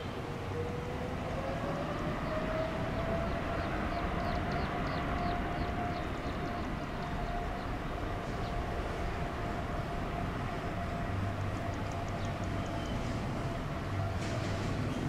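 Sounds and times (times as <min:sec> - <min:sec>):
jet engine whine: 0:00.0 - 0:15.0
rumbling jet noise: 0:00.0 - 0:15.0.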